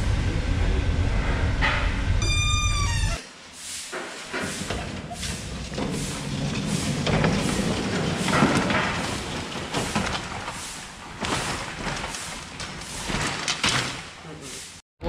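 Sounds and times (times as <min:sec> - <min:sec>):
rack trolley rattling: 0:04.0 - 0:14.2
metal trays clanking: 0:04.3 - 0:14.1.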